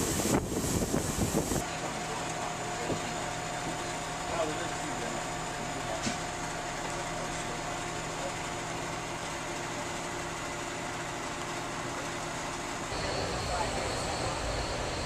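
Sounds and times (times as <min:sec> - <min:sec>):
train car mechanical hum: 0:00.0 - 0:15.0.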